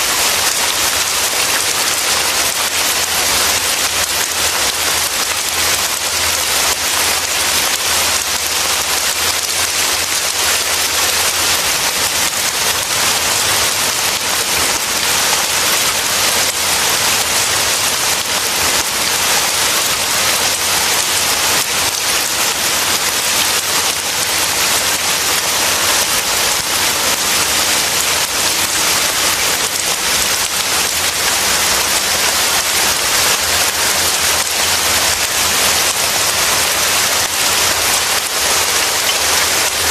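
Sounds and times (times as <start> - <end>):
heavy rain falling: 0.0 - 39.9.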